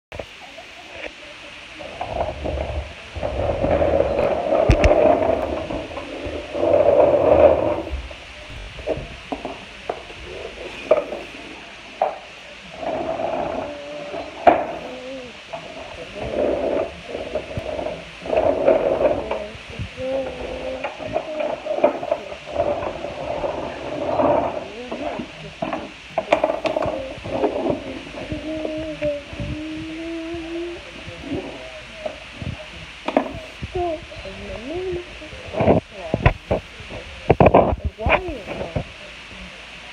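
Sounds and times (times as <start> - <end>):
plastic toy wheels rolling on wood: 1.8 - 11.4, 12.0 - 32.3.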